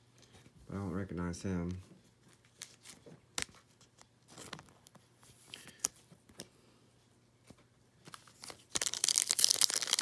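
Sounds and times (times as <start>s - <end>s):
plastic card sleeve rustling: 2.2s - 6.5s, 7.5s - 10.0s.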